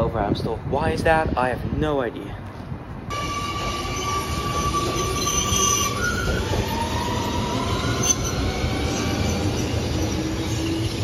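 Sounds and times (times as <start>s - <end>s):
metro train rumble: 3.0s - 11.0s
high whining train tones: 3.1s - 11.0s.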